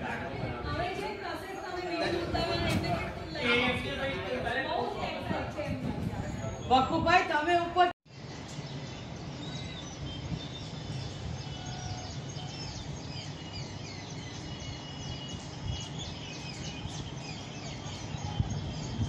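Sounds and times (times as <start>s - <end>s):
small birds chirping: 8.1s - 19.0s.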